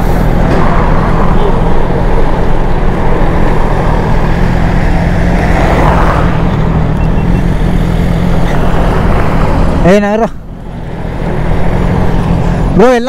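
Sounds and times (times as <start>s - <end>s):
wind rushing over microphone: 0.0s - 9.9s.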